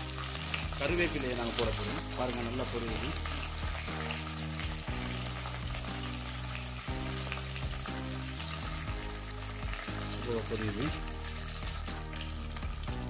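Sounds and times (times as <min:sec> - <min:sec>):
background music low notes: 0:00.0 - 0:13.0
leaves sizzling in hot oil: 0:00.0 - 0:13.0.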